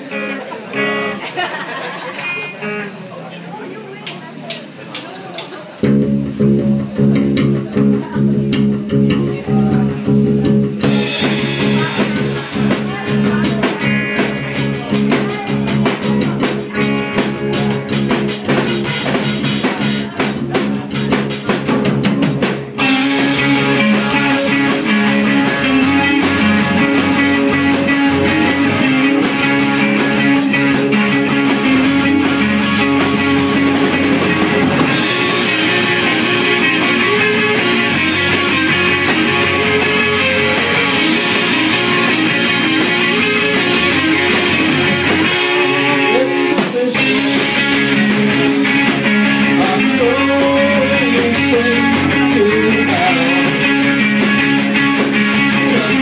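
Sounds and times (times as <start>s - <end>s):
bass guitar: 0.0s - 3.1s, 5.8s - 56.0s
electric guitars: 0.0s - 3.4s, 5.8s - 56.0s
drum kit: 5.8s - 56.0s.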